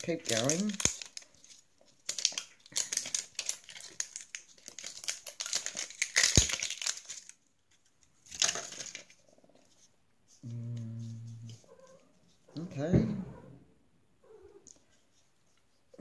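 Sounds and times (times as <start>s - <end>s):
plastic wrapping crinkling: 0.0s - 9.9s.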